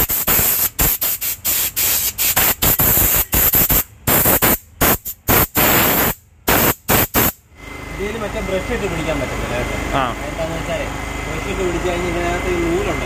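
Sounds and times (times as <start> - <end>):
steam gun hissing: 0.0 - 7.4.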